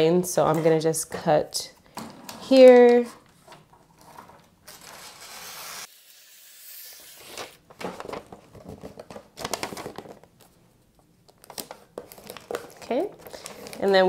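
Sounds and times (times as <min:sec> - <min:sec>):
paper crinkling and rustling: 0:03.0 - 0:05.5, 0:07.2 - 0:10.6, 0:11.3 - 0:14.0
scissors cutting wrapping paper: 0:04.7 - 0:07.6.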